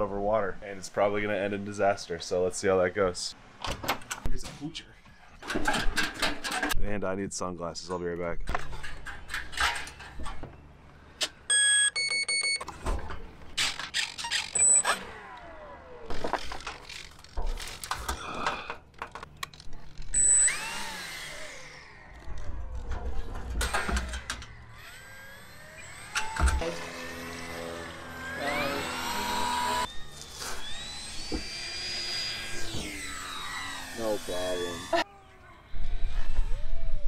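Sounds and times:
electric motor and propeller whirring: 13.2s - 18.2s, 19.2s - 35.1s, 35.7s - 37.0s.

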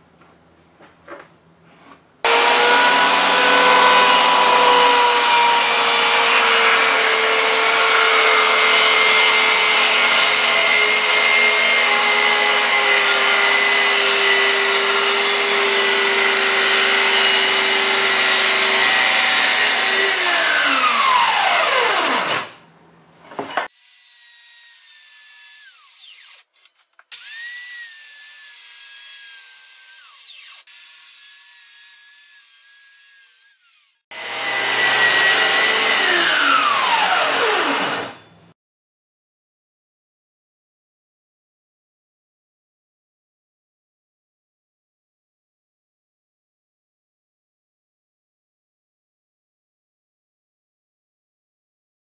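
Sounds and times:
circular saw cutting plywood: 2.2s - 22.6s, 23.3s - 38.3s
quiet saw running: 2.2s - 22.6s, 27.2s - 38.3s.

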